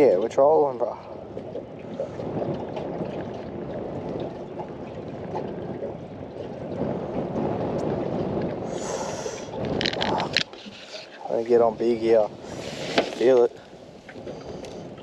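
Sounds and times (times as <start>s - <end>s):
outboard motor running slowly: 0.0s - 15.0s
water washing against hull: 0.0s - 15.0s.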